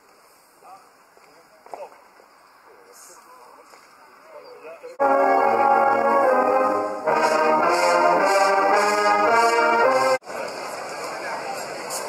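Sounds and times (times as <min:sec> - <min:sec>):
marching brass band playing: 0:05.0 - 0:10.2.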